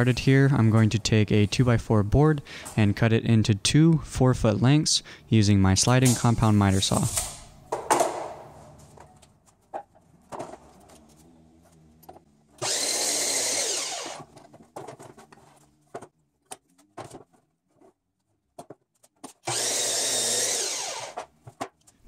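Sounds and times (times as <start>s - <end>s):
miter saw cutting wood: 12.6s - 14.3s, 19.4s - 21.2s.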